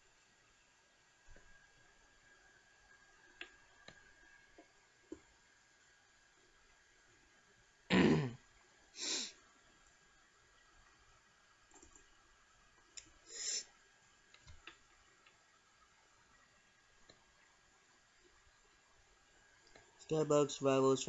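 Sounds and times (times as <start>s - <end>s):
computer mouse clicks: 11.7s - 12.1s, 14.3s - 15.4s.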